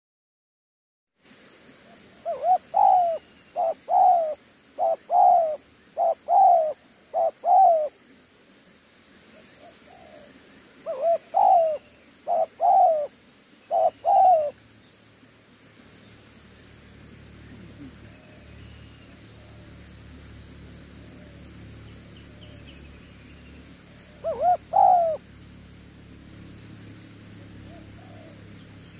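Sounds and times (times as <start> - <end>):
dove cooing: 2.2 - 8.0, 9.6 - 14.6, 20.9 - 22.6, 23.9 - 25.2, 27.4 - 28.6.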